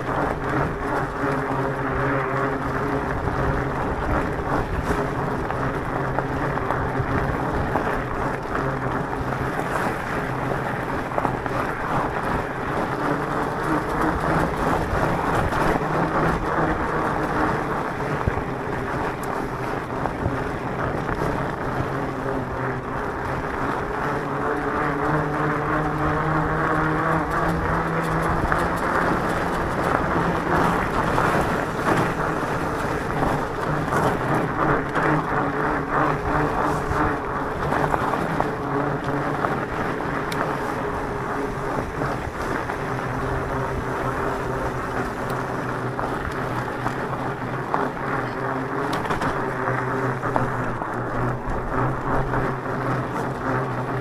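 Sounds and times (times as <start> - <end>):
electric bike motor humming: 0.0 - 54.0
tyres crunching on gravel: 27.2 - 52.2.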